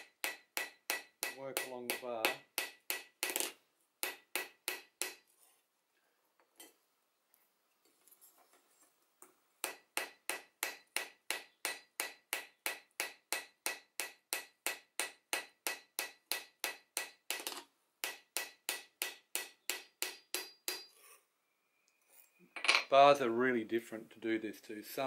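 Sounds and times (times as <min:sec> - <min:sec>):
hammer striking metal: 0:00.0 - 0:03.4, 0:09.6 - 0:20.9.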